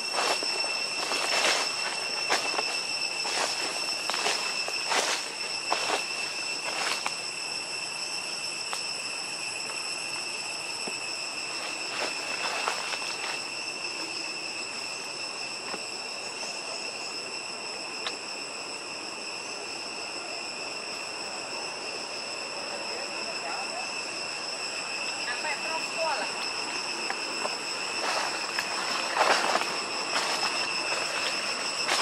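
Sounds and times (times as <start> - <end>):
rustling in dry leaves: 0.0 - 7.5, 11.3 - 14.7, 24.3 - 32.0
insect chorus drone: 0.0 - 32.0.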